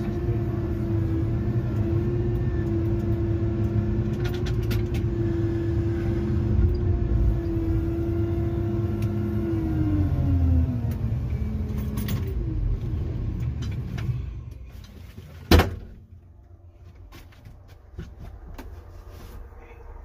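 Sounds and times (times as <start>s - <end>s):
diesel engine winding down: 0.0s - 14.6s.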